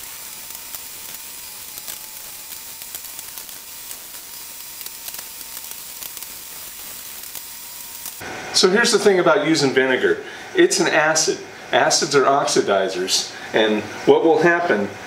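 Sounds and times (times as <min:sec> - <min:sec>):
metal parts clicking and scraping: 0:00.0 - 0:08.2
steady hiss: 0:00.0 - 0:14.9.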